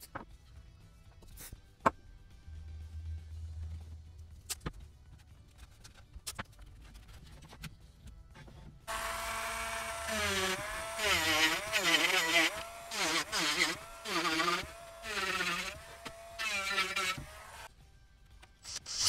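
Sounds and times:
power tool motor whining: 0:08.9 - 0:17.7.

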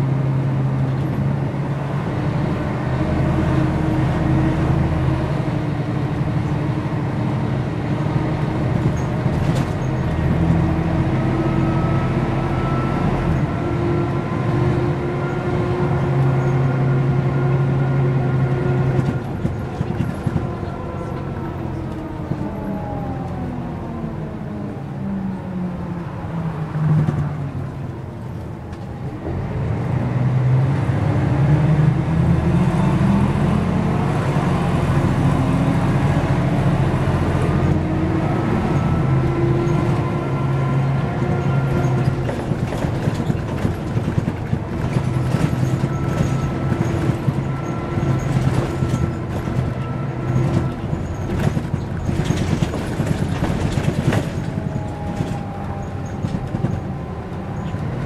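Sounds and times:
bus engine idling: 0:00.0 - 0:29.8, 0:31.9 - 0:58.0.

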